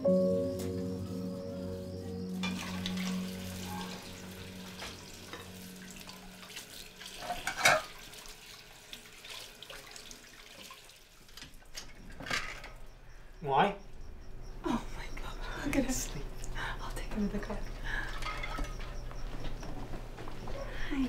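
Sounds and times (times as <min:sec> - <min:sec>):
dishes clinking: 0:02.4 - 0:04.1, 0:07.1 - 0:08.1, 0:18.0 - 0:19.8
tap water running into sink: 0:02.6 - 0:12.0.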